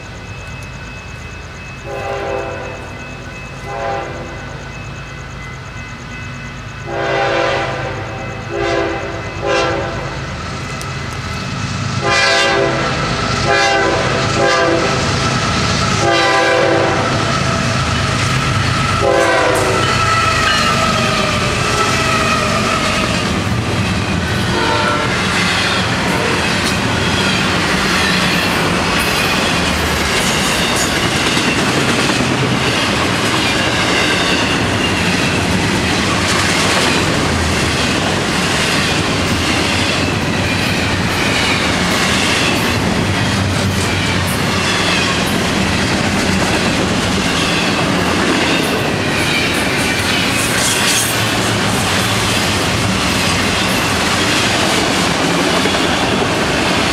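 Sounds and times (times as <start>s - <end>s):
diesel locomotive rumbling: 0.0s - 56.9s
train wheels clacking on rails: 0.0s - 56.9s
train horn blasts: 1.9s - 2.9s, 3.6s - 4.6s, 6.9s - 10.2s, 12.0s - 15.1s, 15.9s - 17.3s, 18.8s - 22.9s, 24.4s - 25.3s
high wheel squeals: 12.8s - 46.0s, 47.0s - 56.9s.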